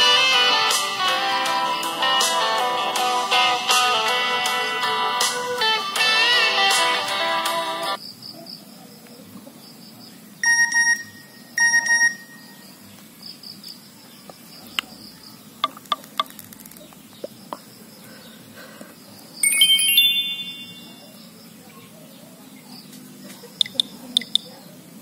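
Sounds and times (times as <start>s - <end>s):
insects chirping: 8.0s - 21.7s, 22.8s - 24.6s
short phone beeps: 10.4s - 12.4s
bright chiming tone: 19.4s - 21.1s.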